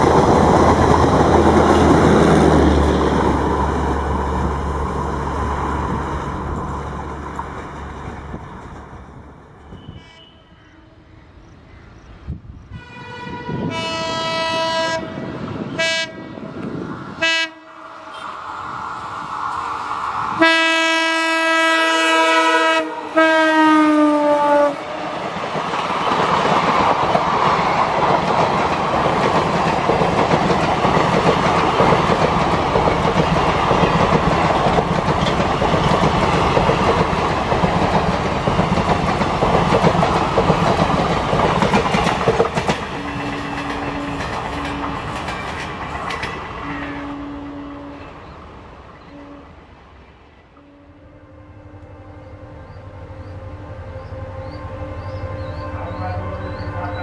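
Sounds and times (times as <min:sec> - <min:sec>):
train wheels rattling on rails: 0:00.0 - 0:10.3, 0:23.5 - 0:47.3
diesel locomotive engine rumble: 0:00.0 - 0:57.0
train horn blasts: 0:09.6 - 0:11.1, 0:12.7 - 0:16.6, 0:17.2 - 0:18.4, 0:20.3 - 0:25.2, 0:42.9 - 0:45.1, 0:46.6 - 0:48.3, 0:49.0 - 0:49.6, 0:50.6 - 0:57.0.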